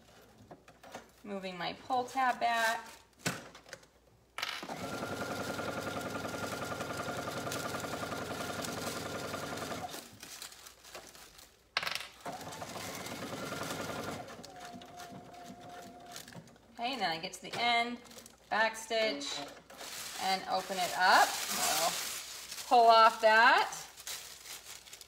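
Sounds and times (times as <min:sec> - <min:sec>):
sewing machine stitching: 0:04.6 - 0:10.0, 0:12.2 - 0:16.7.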